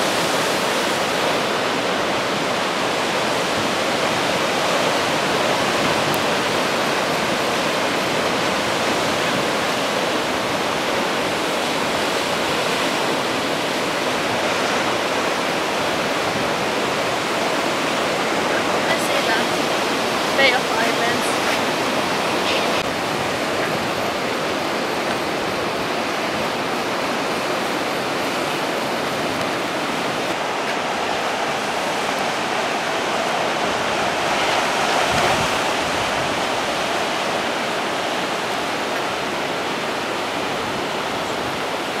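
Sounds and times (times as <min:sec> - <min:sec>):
sea surf breaking over rocks: 0:00.0 - 0:42.0.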